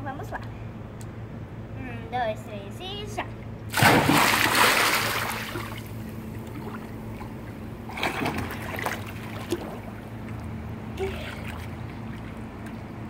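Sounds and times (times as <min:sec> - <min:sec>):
pool water splashing: 0:03.7 - 0:13.0.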